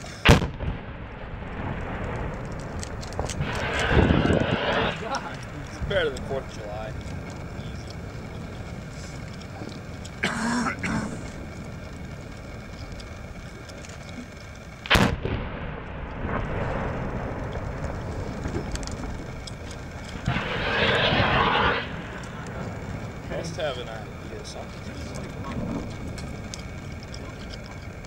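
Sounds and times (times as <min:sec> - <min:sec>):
low rumble: 0:00.0 - 0:28.0
sharp explosive blast: 0:00.2 - 0:02.3, 0:03.2 - 0:06.1, 0:14.9 - 0:17.5, 0:20.2 - 0:22.8
loud rushing noise: 0:03.3 - 0:06.7, 0:20.0 - 0:23.7.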